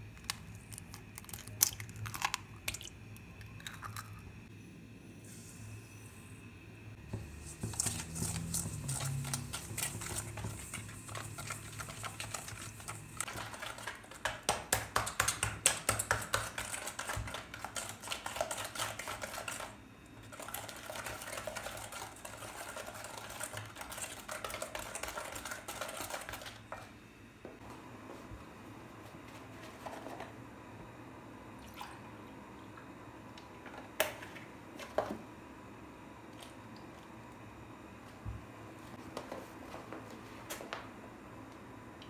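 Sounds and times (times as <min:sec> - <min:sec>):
whisk beating eggs in metal bowl: 0:07.2 - 0:26.8.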